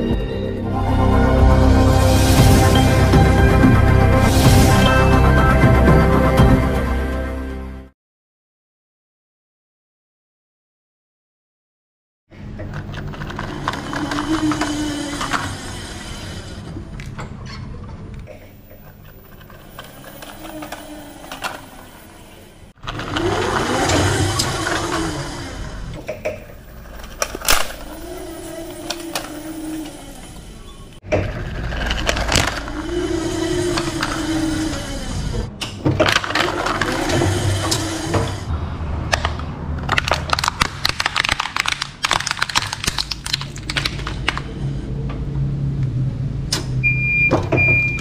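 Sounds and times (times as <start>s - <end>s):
forklift engine rumbling and whining: 0.0s - 7.8s, 12.5s - 39.8s, 43.9s - 48.0s
plastic toy cracking and crunching: 12.7s - 15.6s, 27.0s - 29.8s, 31.2s - 33.0s, 36.0s - 37.2s, 39.1s - 44.5s.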